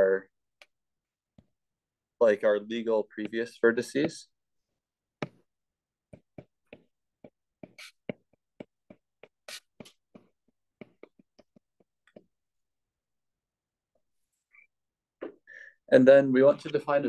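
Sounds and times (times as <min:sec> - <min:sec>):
stylus tapping on glass screen: 0:06.1 - 0:12.3.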